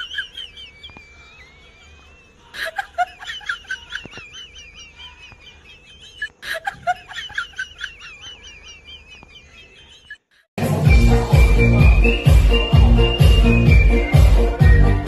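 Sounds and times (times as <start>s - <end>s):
high-pitched rapid cackling: 0.0s - 10.5s.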